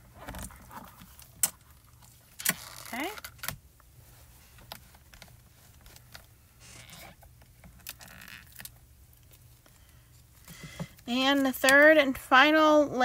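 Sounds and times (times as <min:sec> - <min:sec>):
cloth rustling: 0:03.9 - 0:10.5.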